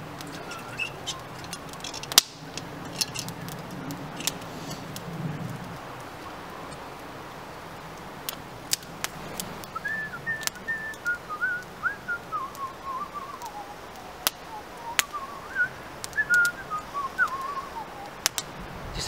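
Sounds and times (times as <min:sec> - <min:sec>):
wood fire crackling and popping: 0:00.0 - 0:19.0
man whistling a tune: 0:09.7 - 0:13.8, 0:14.5 - 0:18.1.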